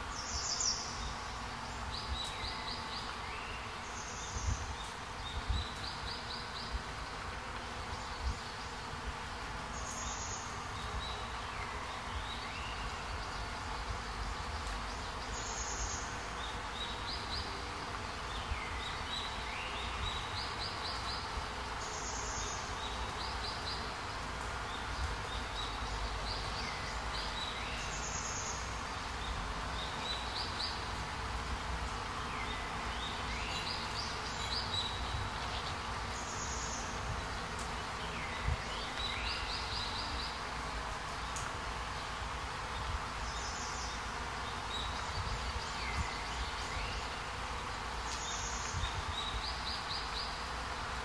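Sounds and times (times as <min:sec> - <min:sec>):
steady forest hiss: 0:00.0 - 0:51.0
bird chirping calls: 0:32.3 - 0:37.0.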